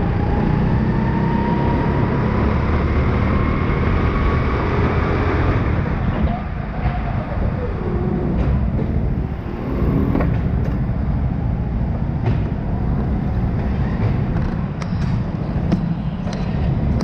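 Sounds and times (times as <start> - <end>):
go-kart engine rumble: 0.0 - 17.0
knocks and rattles: 11.8 - 17.0.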